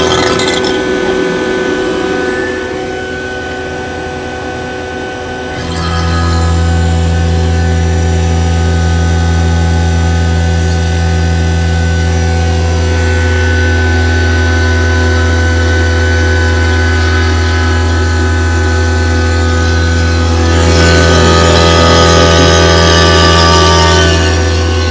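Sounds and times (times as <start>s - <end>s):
vacuum pump humming: 0.0s - 24.9s.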